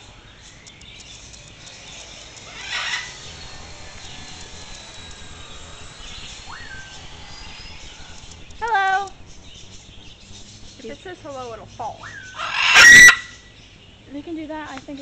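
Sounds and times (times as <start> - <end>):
parrot rising whistle: 2.5 - 3.2, 4.9 - 8.3, 12.0 - 13.4
parrot squawk: 2.5 - 3.2, 11.8 - 13.5.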